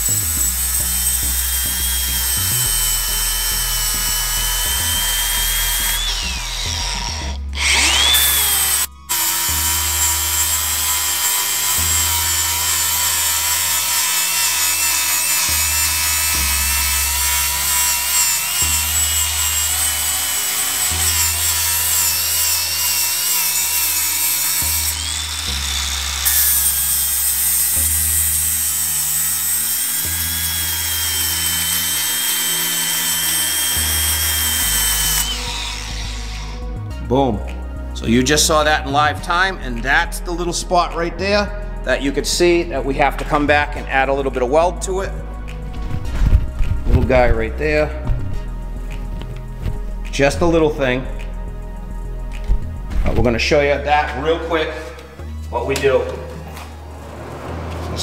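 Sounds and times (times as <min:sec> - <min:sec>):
angle grinder grinding metal: 0:00.0 - 0:38.9
background music with bass line: 0:00.0 - 0:58.0.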